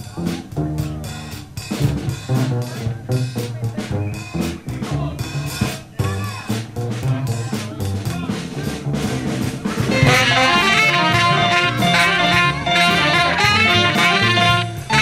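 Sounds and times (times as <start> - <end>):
double bass: 0.0 - 15.0
drum kit: 0.0 - 15.0
saxophones playing fast melody: 9.0 - 15.0.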